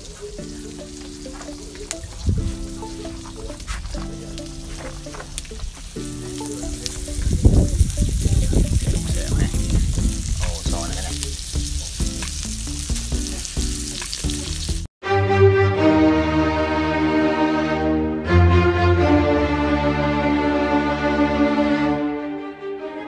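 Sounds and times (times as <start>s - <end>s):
faint music: 0.0s - 11.9s
bowed-string music: 0.0s - 13.5s, 15.0s - 23.0s
food sizzling in hot oil: 0.0s - 14.9s.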